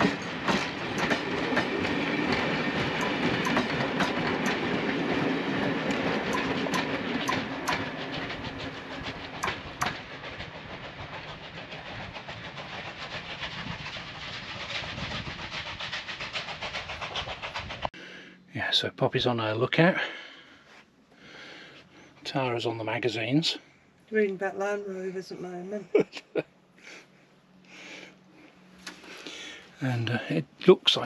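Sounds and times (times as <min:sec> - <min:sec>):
train wheels clicking over rail joints: 0:00.0 - 0:18.0.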